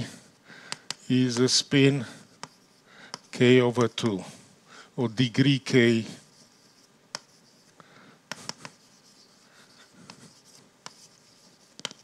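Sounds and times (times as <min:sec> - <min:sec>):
chalk tapping on board: 0:00.7 - 0:01.7, 0:02.3 - 0:04.2, 0:06.2 - 0:12.0
chalk scratching on blackboard: 0:01.1 - 0:04.3, 0:05.3 - 0:12.0.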